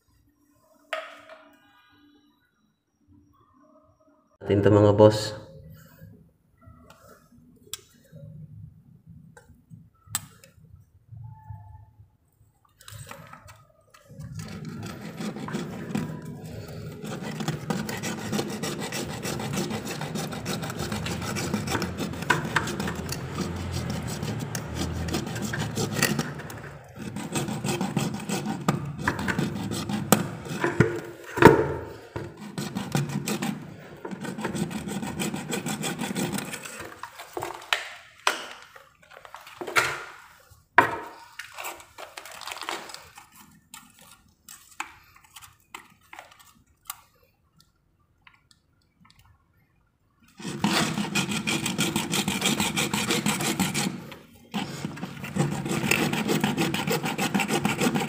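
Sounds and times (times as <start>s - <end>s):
scraping at a buried pipe: 14.1s - 37.6s, 50.4s - 58.0s.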